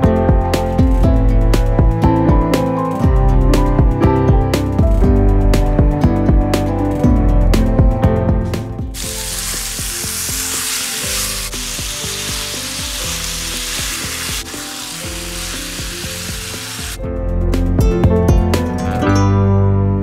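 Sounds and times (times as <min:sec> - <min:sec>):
soft guitar music: 0:00.0 - 0:20.0
chicken sizzling in a pan: 0:09.0 - 0:17.0.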